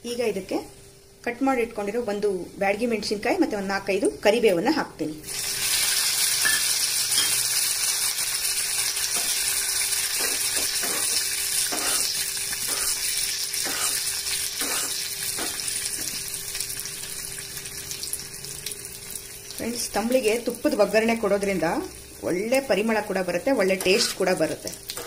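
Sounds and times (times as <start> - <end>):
spices sizzling in hot oil: 0.0 - 25.0
metal spoon scraping a pan: 10.2 - 14.0, 14.6 - 15.6, 23.8 - 24.4.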